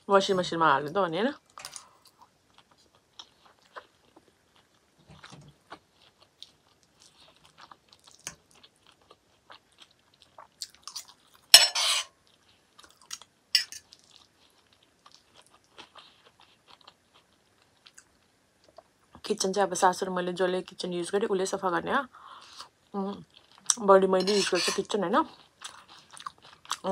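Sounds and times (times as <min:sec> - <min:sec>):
person chewing food: 0:02.0 - 0:11.5, 0:12.2 - 0:19.1, 0:25.3 - 0:26.9.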